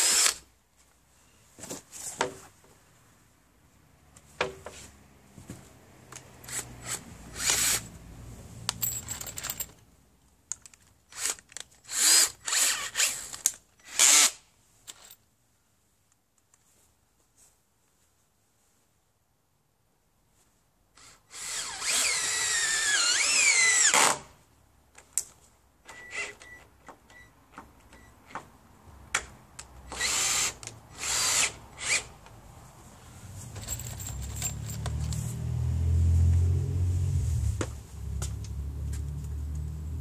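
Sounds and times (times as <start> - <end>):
cordless drill whining into wood: 0.0 - 0.4, 6.5 - 7.9, 11.1 - 14.4, 21.0 - 24.3, 25.9 - 26.6, 29.9 - 32.1.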